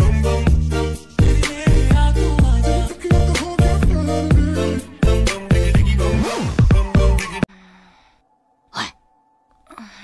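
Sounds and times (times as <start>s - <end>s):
electronic music with heavy bass: 0.0s - 7.5s.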